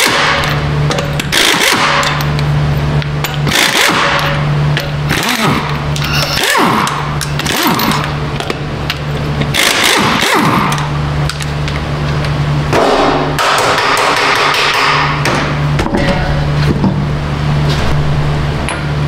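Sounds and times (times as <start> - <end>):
steady low hum: 0.0 - 19.0
metal tool striking: 12.8 - 16.6.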